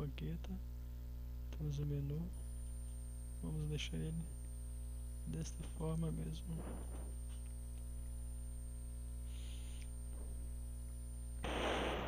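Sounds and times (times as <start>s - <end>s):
faint high-pitched whine: 0.0s - 12.0s
low electrical hum: 0.0s - 12.0s.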